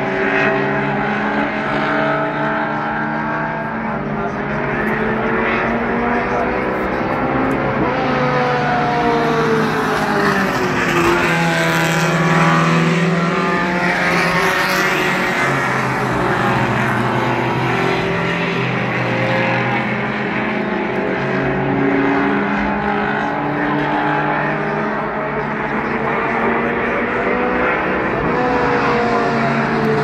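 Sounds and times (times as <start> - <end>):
race car engines running: 0.0 - 30.0
race car passing close: 0.0 - 30.0.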